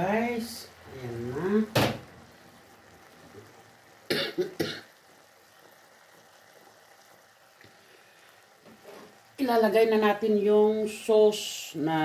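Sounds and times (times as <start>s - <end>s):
faint steady hiss: 0.0s - 12.0s
person coughing: 4.1s - 4.9s.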